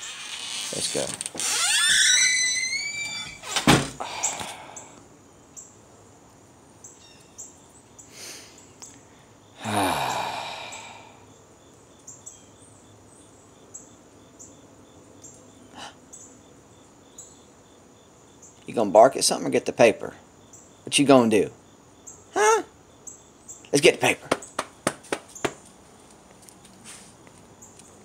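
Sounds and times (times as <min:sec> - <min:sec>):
door hinges squeaking: 0:00.0 - 0:04.0
birds or insects chirping: 0:00.0 - 0:28.0
door shutting thunk: 0:03.4 - 0:04.0.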